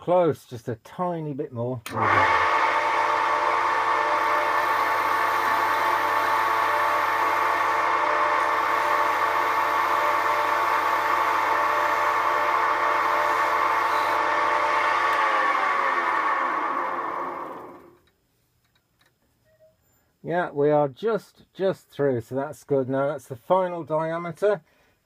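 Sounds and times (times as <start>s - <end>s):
parting tool cutting wood: 1.9s - 18.1s
wood lathe whining: 1.9s - 18.1s.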